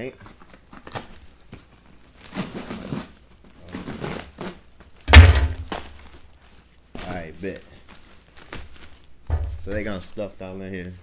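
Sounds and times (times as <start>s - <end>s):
cardboard and tape rustling: 0.0s - 11.0s
loud deep thump: 5.1s - 5.7s, 9.3s - 9.7s.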